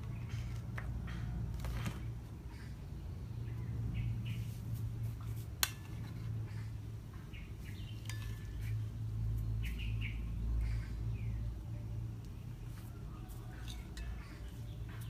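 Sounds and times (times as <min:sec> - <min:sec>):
utensils clinking against pot: 0:13.5 - 0:14.5.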